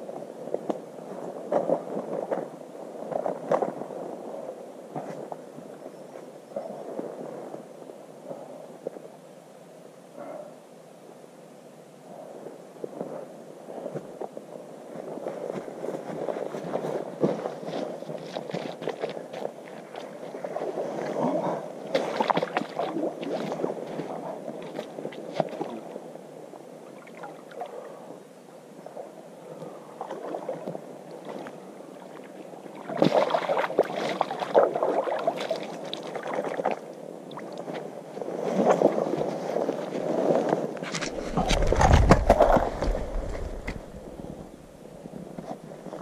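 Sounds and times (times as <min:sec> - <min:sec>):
water sloshing and splashing: 0:17.7 - 0:25.9, 0:30.0 - 0:39.0, 0:40.8 - 0:44.4
handling rumble on microphone: 0:38.3 - 0:46.0.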